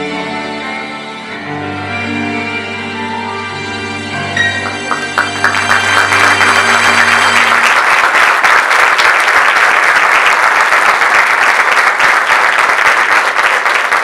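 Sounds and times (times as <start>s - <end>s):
music: 0.0s - 8.4s
audience applauding: 4.5s - 14.0s.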